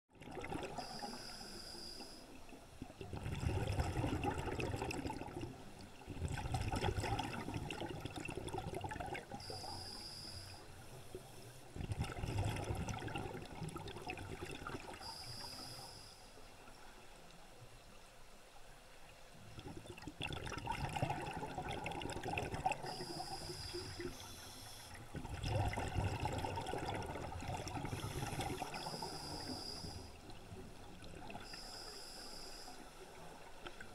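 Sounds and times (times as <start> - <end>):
exhaled air bubbling: 0.1 - 1.2, 2.8 - 10.0, 11.7 - 15.7, 19.4 - 31.8
regulator air hiss: 0.8 - 2.4, 9.4 - 11.7, 15.0 - 16.4, 22.9 - 25.0, 27.9 - 30.2, 31.5 - 33.0.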